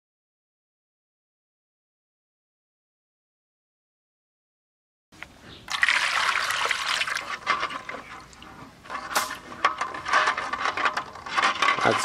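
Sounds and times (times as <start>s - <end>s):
water splashing and trickling: 5.7s - 10.9s.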